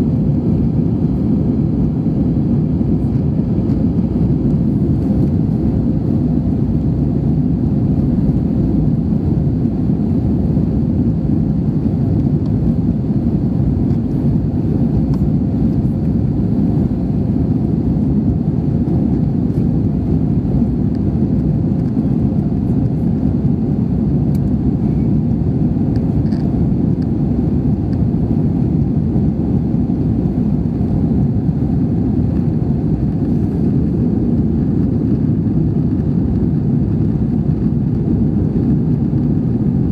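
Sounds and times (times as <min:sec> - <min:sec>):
jet airliner cabin rumble: 0:00.0 - 0:39.9.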